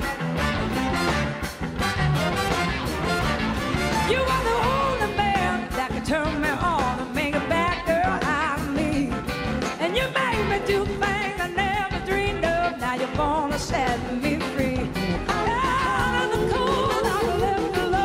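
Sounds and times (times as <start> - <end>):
drums: 0.0 - 18.0
electric guitar: 0.0 - 18.0
woman singing: 4.0 - 18.0.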